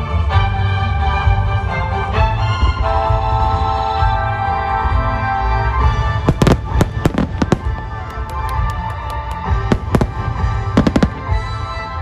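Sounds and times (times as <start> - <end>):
music with long held tones: 0.0 - 12.0
firework shells bursting: 6.3 - 11.5.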